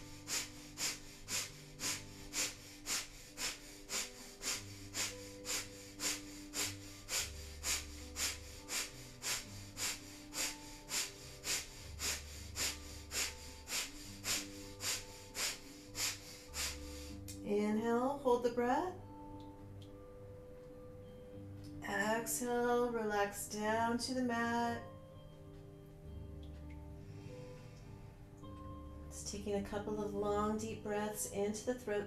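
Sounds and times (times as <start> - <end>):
rhythmic forceful nasal exhales: 0.0 - 17.3, 27.0 - 28.2.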